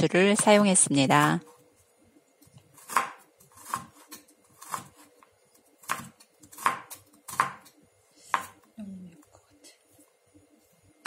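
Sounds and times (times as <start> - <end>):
knife chopping on wooden board: 2.7 - 5.2, 5.8 - 7.7, 8.3 - 8.7.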